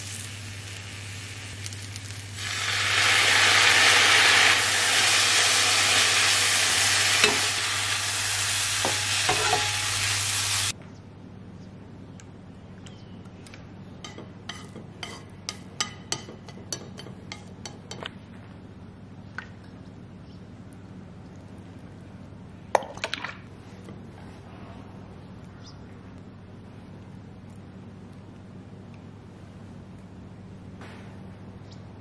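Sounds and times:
kitchenware clinking: 8.8 - 10.0.

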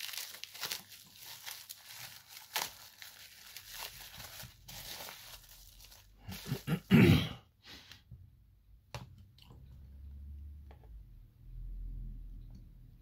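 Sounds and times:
rustling crinkling scrapes: 0.0 - 6.9.

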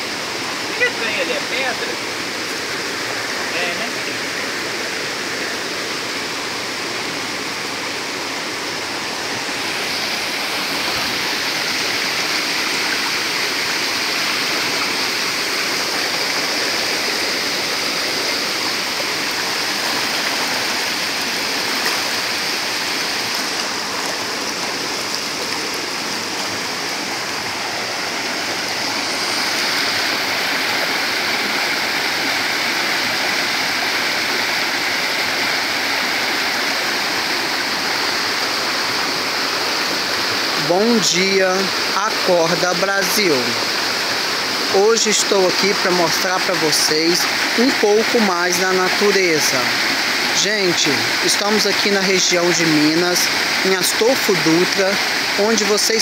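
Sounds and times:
waterfall rushing over rocks: 0.0 - 56.0.

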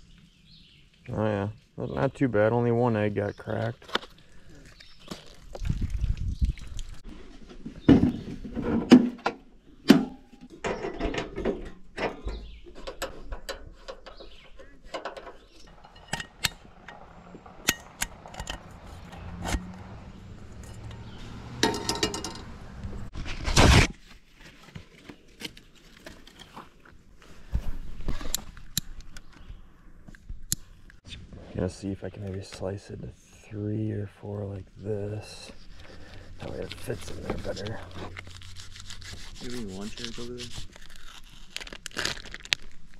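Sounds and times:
camp cooking gear clattering: 7.5 - 19.8, 20.5 - 22.5.

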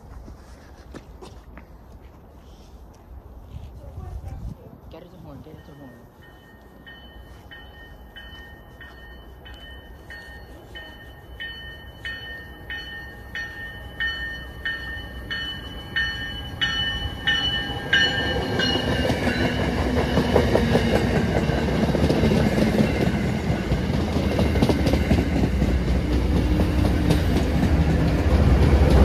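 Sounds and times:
train bell ringing: 5.1 - 24.3
train wheels clattering on rails: 12.8 - 29.0.

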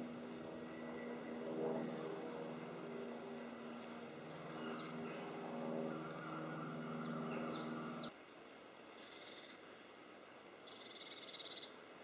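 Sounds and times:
low mechanical hum: 0.0 - 8.1
bird chirps: 5.9 - 8.1.

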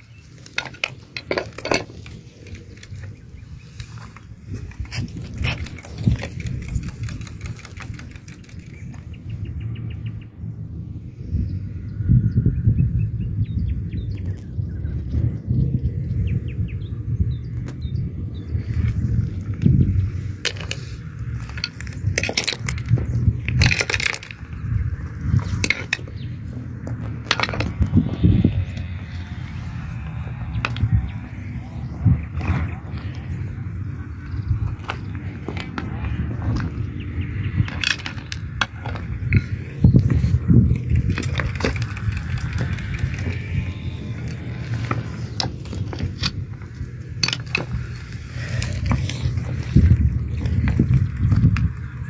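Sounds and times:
low rumble: 0.0 - 52.0
stones clicking together: 20.3 - 24.6, 37.6 - 51.9
pebbles crunching underfoot: 32.4 - 52.0.

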